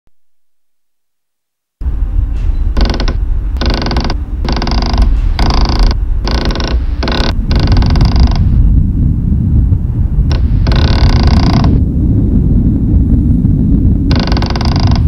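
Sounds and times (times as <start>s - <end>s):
steady low rumble: 1.8s - 15.0s
creaking rasps: 2.4s - 8.6s, 10.3s - 11.8s, 14.1s - 15.0s.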